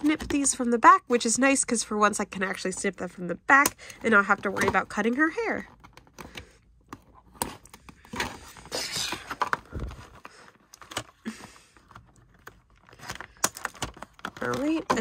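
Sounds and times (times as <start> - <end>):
packaging rustling: 4.1 - 15.0.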